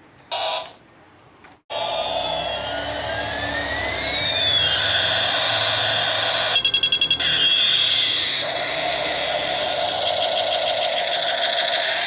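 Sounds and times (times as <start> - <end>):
toy electronic siren: 1.7 - 12.0
toy rotor motor whirring: 1.8 - 12.0
fast-pulsing beep: 2.5 - 8.4.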